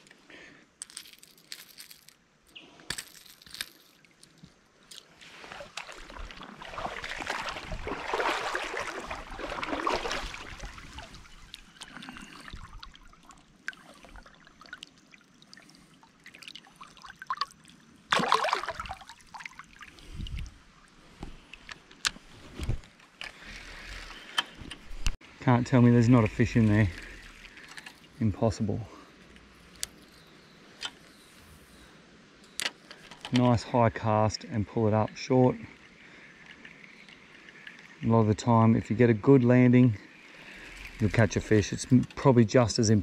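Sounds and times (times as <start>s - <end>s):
creek water sloshing: 4.9s - 25.1s, 25.8s - 28.4s, 35.8s - 38.4s, 40.1s - 43.0s
sharp splash: 5.4s - 11.3s, 18.1s - 19.8s.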